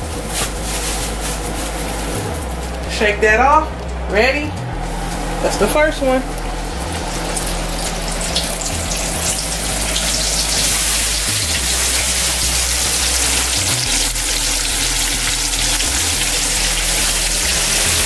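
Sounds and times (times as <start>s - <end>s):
chicken deep-frying in oil: 6.4s - 18.0s.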